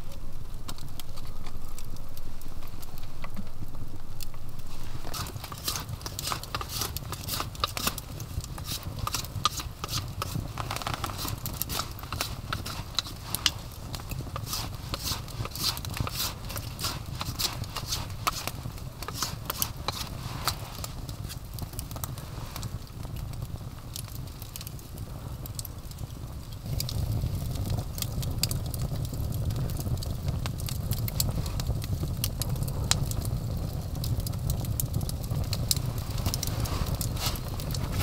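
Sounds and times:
low rumble: 0.0s - 6.1s
wood fire crackling and popping: 0.0s - 38.0s.

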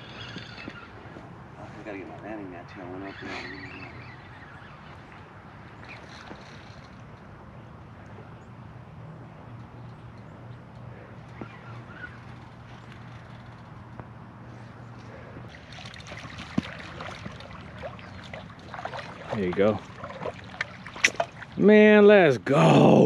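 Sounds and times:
low engine hum: 0.0s - 23.0s
water splashing: 15.5s - 22.0s.

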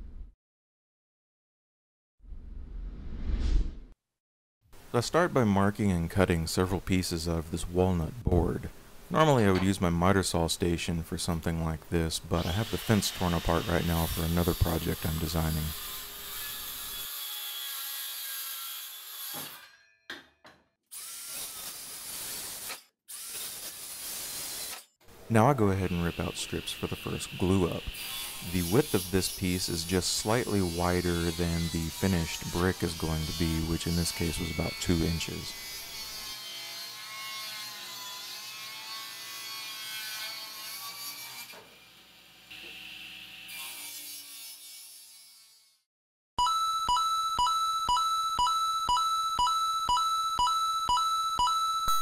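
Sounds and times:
circular saw cutting wood: 12.2s - 19.8s, 20.9s - 24.9s, 25.5s - 45.8s.

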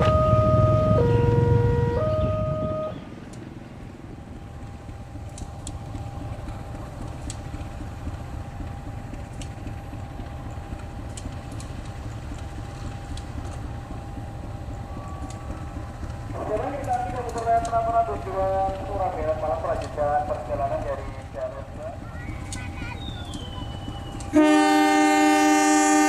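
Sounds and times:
locomotive engine idling: 0.0s - 26.0s
thin steady whine: 3.9s - 26.0s
faint clicks: 15.0s - 18.0s, 19.6s - 20.0s, 24.1s - 24.4s.

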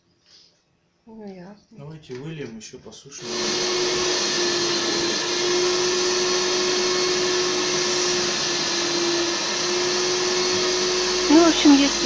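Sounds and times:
vacuum cleaner whine: 3.2s - 12.0s.

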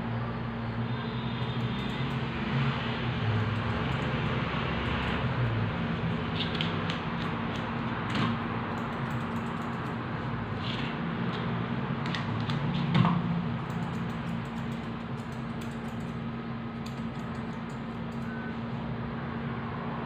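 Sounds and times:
scissors snipping fur: 13.6s - 16.2s.

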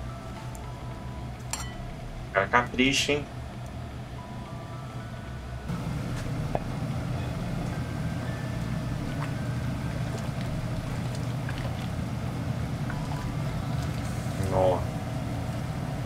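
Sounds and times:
low kitchen rumble: 0.0s - 16.0s
light clinks: 1.4s - 1.9s.

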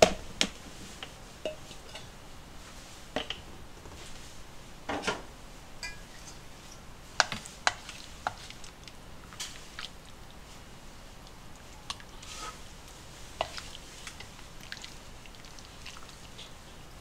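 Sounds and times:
ladle clinking against pot: 5.8s - 6.4s.

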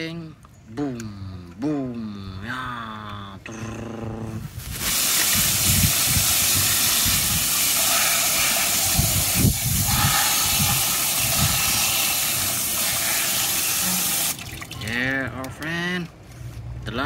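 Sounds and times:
hose nozzle spraying water: 4.6s - 14.8s
water splattering on plastic: 4.8s - 15.0s.

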